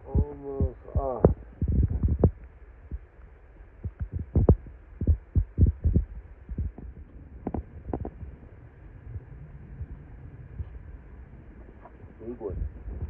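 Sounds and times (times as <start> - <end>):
dull knocks and thumps: 3.8 - 8.3.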